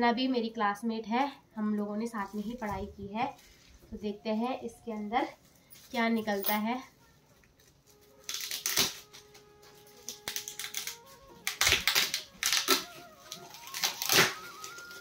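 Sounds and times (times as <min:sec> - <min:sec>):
wrapping paper crinkling and tearing: 0:07.0 - 0:15.0.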